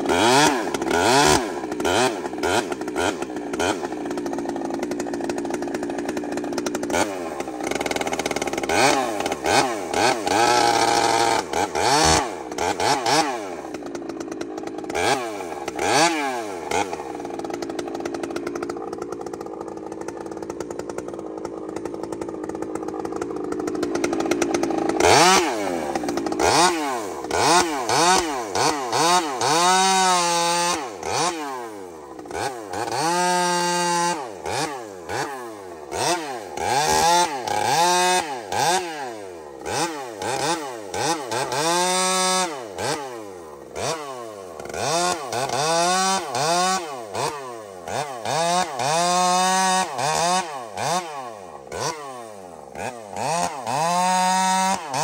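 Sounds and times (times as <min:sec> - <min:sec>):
chainsaw revving and cutting logs: 0:00.0 - 0:55.0.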